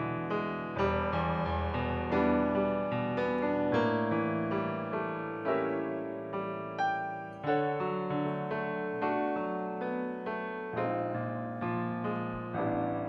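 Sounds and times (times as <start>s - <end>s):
piano jazz ballad: 0.0s - 13.0s.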